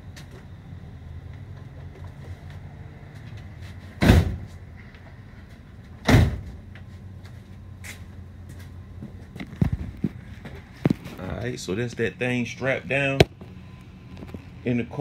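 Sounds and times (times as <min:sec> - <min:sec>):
steady low hum: 0:00.0 - 0:15.0
van door thumps: 0:04.0 - 0:04.6, 0:06.0 - 0:06.6.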